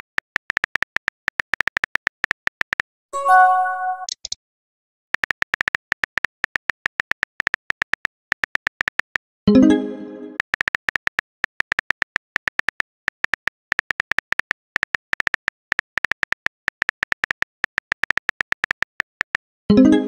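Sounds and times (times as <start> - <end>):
short pitched chime: 3.2 - 4.1
keyboard click sound effects: 3.2 - 4.4.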